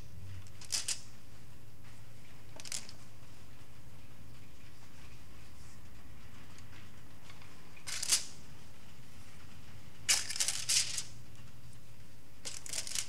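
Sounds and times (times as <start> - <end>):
aluminum foil crinkling: 12.4 - 13.0.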